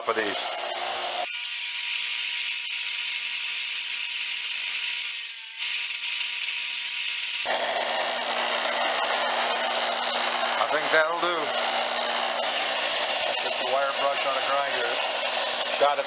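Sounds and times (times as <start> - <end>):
grinder motor hum: 0.5 - 16.0
wire wheel grinder scrubbing metal: 1.2 - 7.5.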